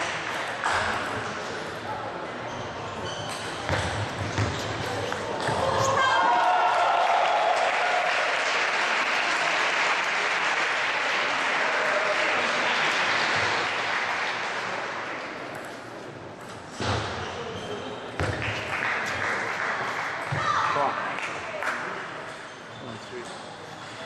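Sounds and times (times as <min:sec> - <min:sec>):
spectators applauding: 0:06.1 - 0:15.1, 0:18.5 - 0:20.2.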